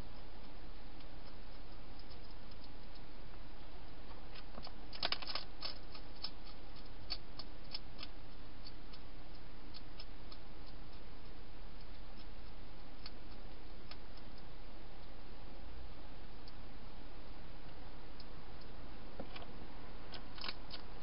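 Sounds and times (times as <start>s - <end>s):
low hum and hiss: 0.0s - 21.0s
hedgehog crunching dry food: 4.3s - 14.5s, 20.1s - 20.9s.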